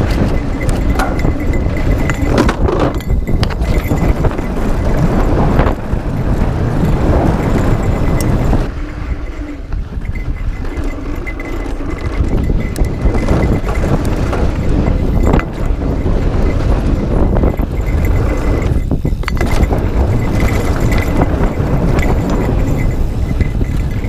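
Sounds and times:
wheels knocking on wooden bridge: 0:00.0 - 0:08.5
bike rattling over bumps: 0:00.0 - 0:24.0
tyres on dirt: 0:00.0 - 0:24.0
wind rushing over microphone: 0:00.0 - 0:24.0.

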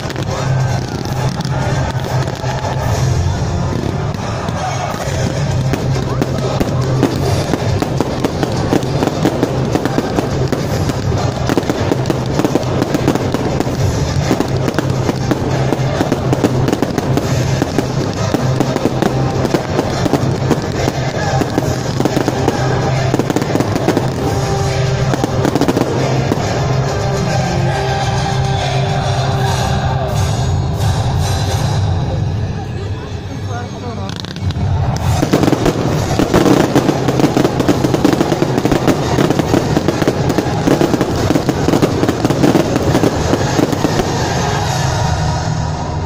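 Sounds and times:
fireworks bursting and crackling: 0:00.0 - 0:29.7, 0:34.0 - 0:46.0
music playing: 0:00.0 - 0:46.0.

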